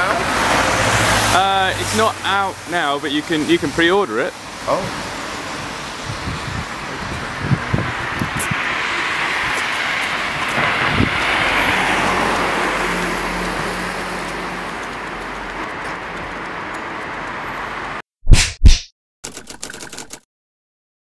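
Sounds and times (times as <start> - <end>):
vehicle passing: 0.2 - 2.2, 7.4 - 17.9.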